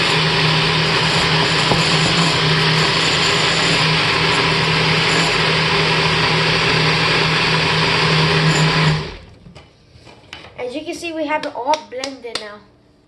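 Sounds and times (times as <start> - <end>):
blender motor humming: 0.0 - 9.4.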